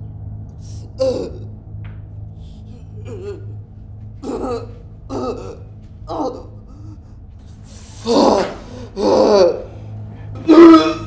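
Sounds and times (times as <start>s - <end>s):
man gasping in pain: 7.8s - 9.7s.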